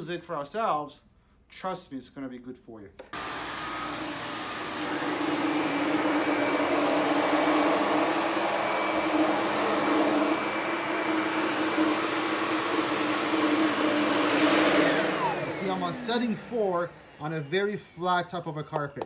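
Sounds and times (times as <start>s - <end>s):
vacuum cleaner running on carpet: 3.2s - 17.4s.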